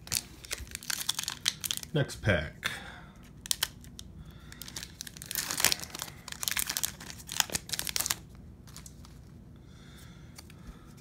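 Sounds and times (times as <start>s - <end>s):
foil wrapper crinkling: 0.0s - 2.0s, 3.3s - 9.3s.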